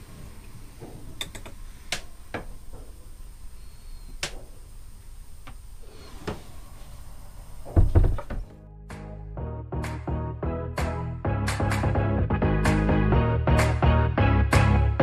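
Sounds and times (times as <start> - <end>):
sharp clicks and light knocks: 0.8 - 3.0.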